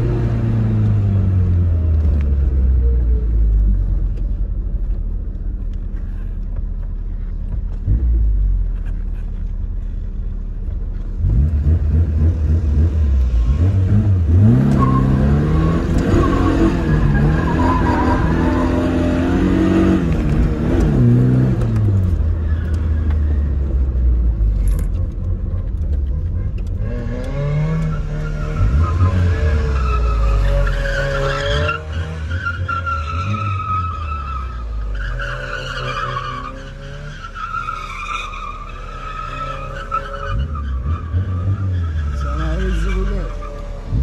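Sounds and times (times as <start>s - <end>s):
car engine revving: 10.6s - 44.0s.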